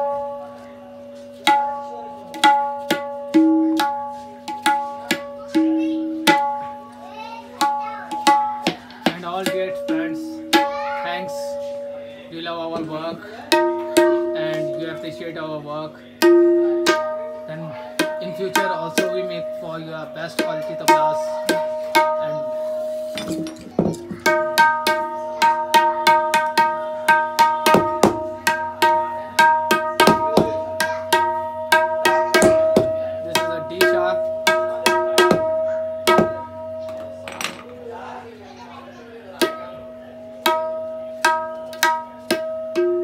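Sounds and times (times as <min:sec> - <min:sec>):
tabla strokes: 0:00.0 - 0:11.9, 0:16.2 - 0:37.8, 0:39.4 - 0:43.0
tuning hammer tapping drum: 0:12.6 - 0:15.4, 0:16.2 - 0:37.9, 0:39.3 - 0:43.0.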